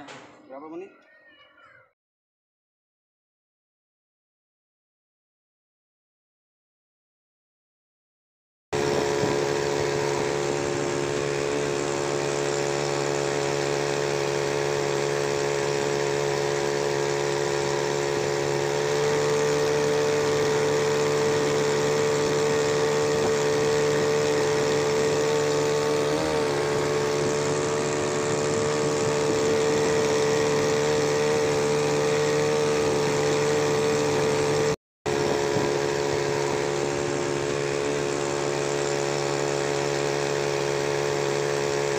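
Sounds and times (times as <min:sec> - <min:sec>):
outboard boat motor running: 0:08.8 - 0:41.9.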